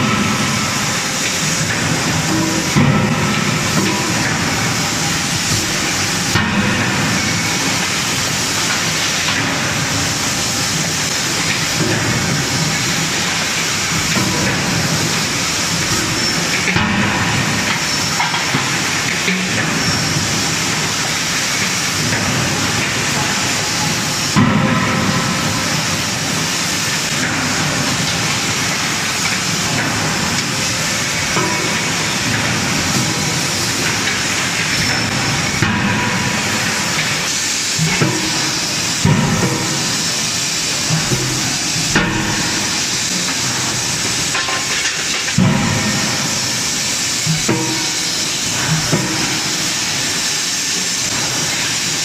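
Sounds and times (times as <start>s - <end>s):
forging line hiss and rumble: 0.0s - 52.0s.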